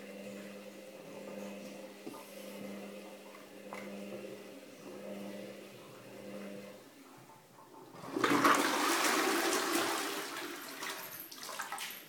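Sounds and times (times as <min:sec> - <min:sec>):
toilet flushing: 0:07.7 - 0:12.0.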